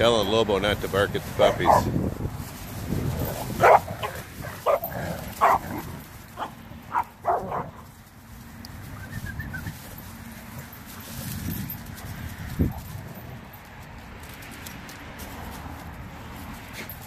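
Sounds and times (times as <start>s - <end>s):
dogs barking in play: 1.4s - 2.0s, 3.0s - 8.0s.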